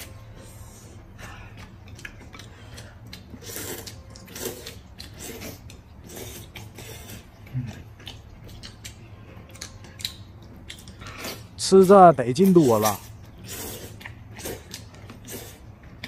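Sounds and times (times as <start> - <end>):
chewing: 1.2 - 11.7, 12.4 - 16.0
noodles being slurped: 1.6 - 8.8, 10.8 - 16.0.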